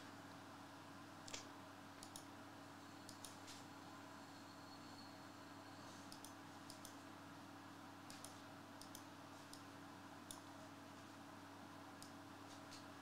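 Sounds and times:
low electrical hum: 0.0s - 13.0s
faint computer clicks: 1.3s - 2.3s, 3.0s - 3.6s, 6.0s - 7.0s, 8.1s - 10.5s.

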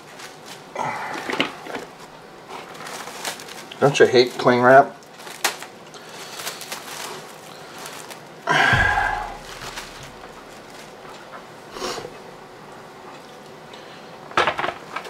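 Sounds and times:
plastic cling wrap crinkling: 0.0s - 11.4s
cling wrap tearing: 1.8s - 8.4s, 9.0s - 11.1s.

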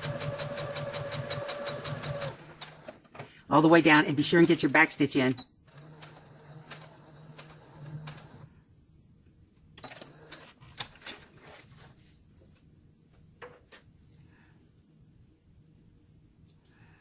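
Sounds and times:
sewing machine stitching: 0.0s - 3.1s, 5.7s - 8.5s
fabric handling: 11.0s - 16.2s.

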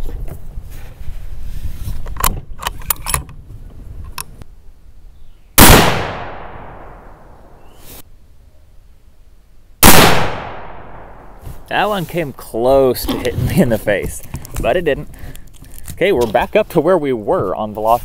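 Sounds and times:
loud rifle shot with echo: 5.6s - 7.4s, 9.8s - 11.3s.

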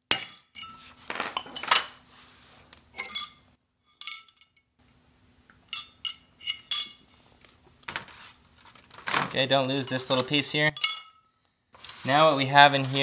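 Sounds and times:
metal parts clinking: 3.0s - 4.6s, 5.7s - 7.1s.

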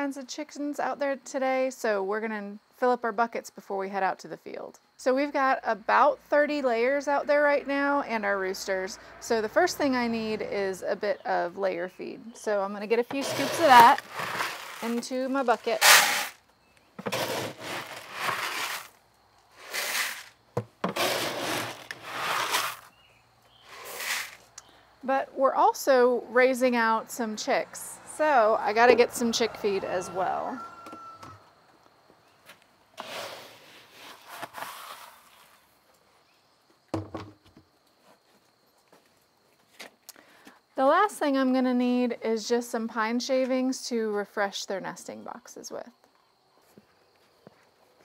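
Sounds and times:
dry feed pouring into bucket: 13.2s - 16.4s, 17.1s - 18.9s, 19.6s - 20.3s, 20.9s - 22.9s
hollow plastic knock: 36.9s - 37.4s.

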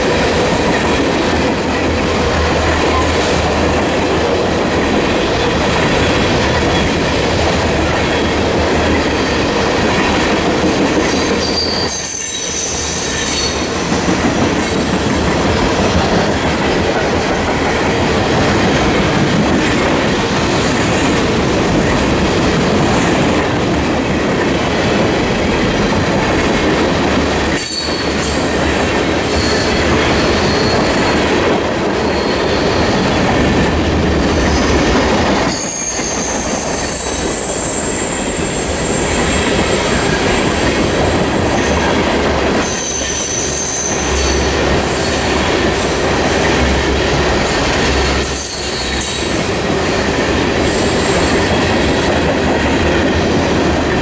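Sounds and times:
train wheels rumbling on rail: 0.0s - 54.0s
wheel squeal: 11.4s - 13.6s, 29.3s - 31.2s, 32.0s - 33.2s, 35.5s - 40.3s, 48.0s - 49.4s.

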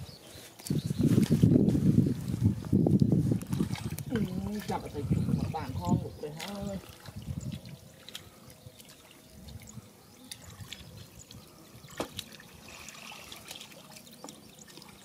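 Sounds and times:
muddy water sloshing: 3.2s - 15.0s
small splashes: 3.4s - 15.0s.

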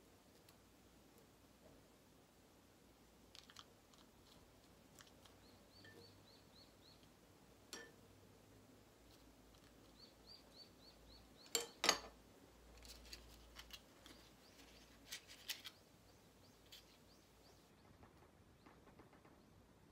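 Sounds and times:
small bird chirping: 3.3s - 8.0s, 9.0s - 11.8s, 12.7s - 19.7s.

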